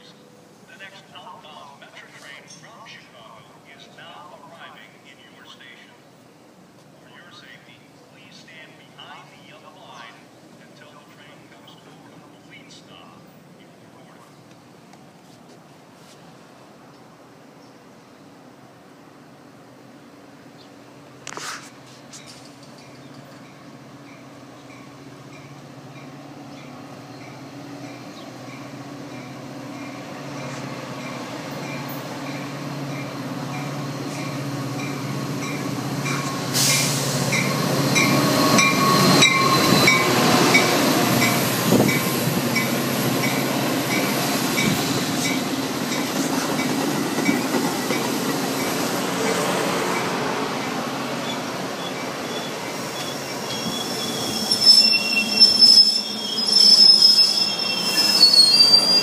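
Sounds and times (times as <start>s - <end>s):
train rumbling past: 15.6s - 59.0s
wheel and brake squeals: 36.2s - 40.1s, 51.2s - 59.0s.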